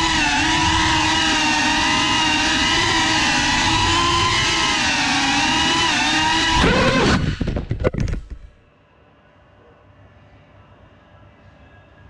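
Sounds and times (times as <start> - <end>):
drone motors whining: 0.0 - 8.6.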